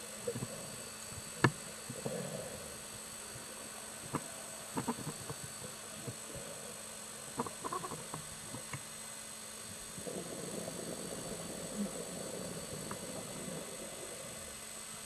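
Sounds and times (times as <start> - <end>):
bubbles rumbling underwater: 9.9 - 14.6
faint clicks: 12.8 - 13.2.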